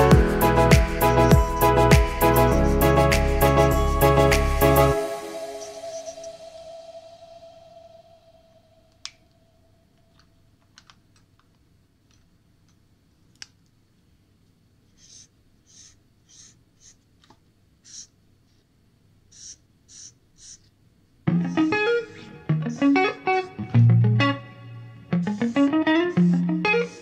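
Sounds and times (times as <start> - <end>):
marker scratching on paper: 14.9 - 17.1, 17.8 - 18.6, 19.3 - 20.7.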